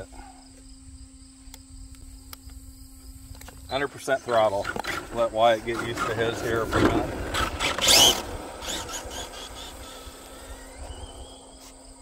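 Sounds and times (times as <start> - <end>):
electric motor whine: 1.5 - 12.0
tyre noise: 3.8 - 12.0.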